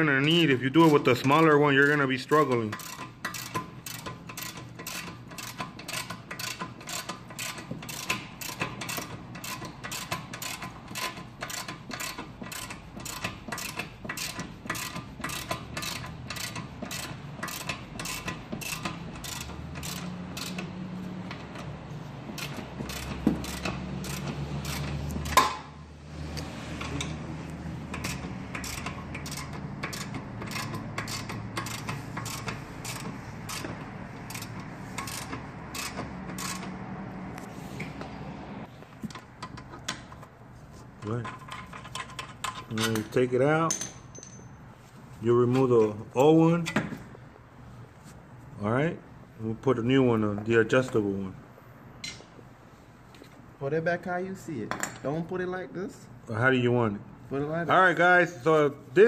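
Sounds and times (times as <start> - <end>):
ratchet clicking: 2.4 - 25.7, 27.8 - 36.8.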